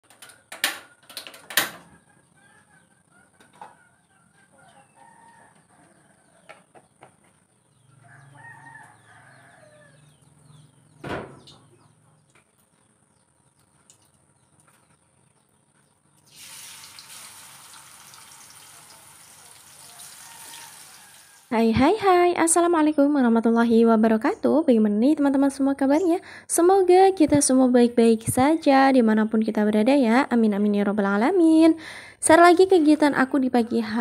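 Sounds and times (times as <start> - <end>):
distant rooster crowing: 0.5 - 7.0, 7.7 - 11.0, 18.7 - 21.6
chickens clucking: 1.8 - 10.7
food sizzling in hot oil: 16.2 - 21.5.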